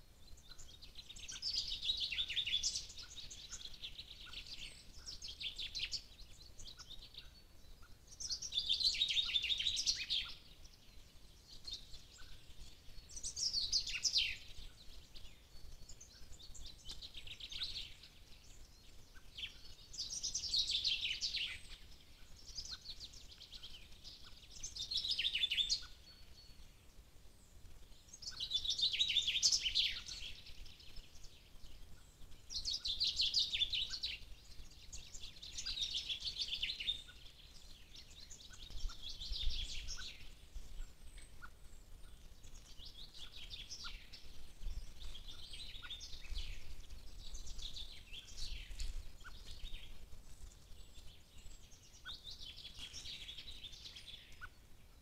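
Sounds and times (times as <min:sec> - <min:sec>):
songbird trilling: 0:11.6 - 0:26.6, 0:32.0 - 0:50.0.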